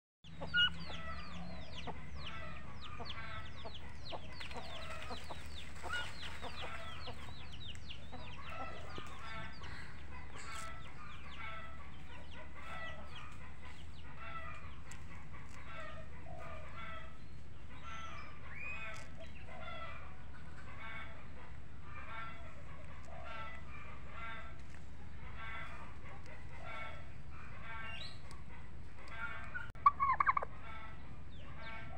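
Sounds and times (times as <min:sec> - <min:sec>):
fowl clucking and chirping: 0:00.3 - 0:31.9.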